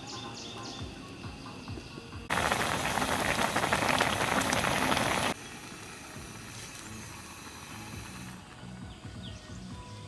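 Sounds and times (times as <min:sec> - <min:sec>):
pot boiling and bubbling: 0:02.3 - 0:08.4.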